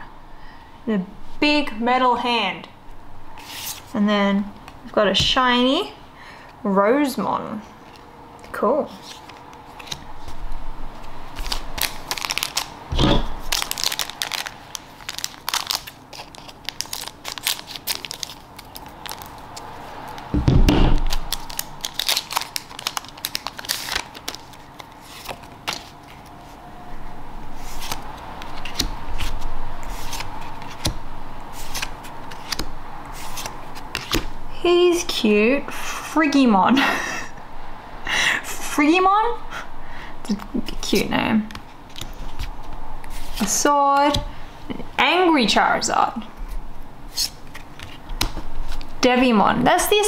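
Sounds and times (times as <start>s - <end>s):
foil pack crinkling and tearing: 11.3s - 20.3s, 21.0s - 26.3s
dull thump: 20.3s - 21.1s
cards rubbing: 27.6s - 34.3s.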